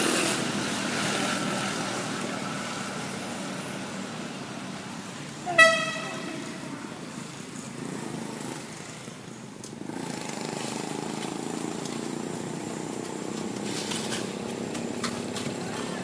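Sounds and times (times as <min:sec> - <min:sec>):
outdoor background noise: 0:00.0 - 0:16.0
vehicle engine running: 0:06.1 - 0:16.0.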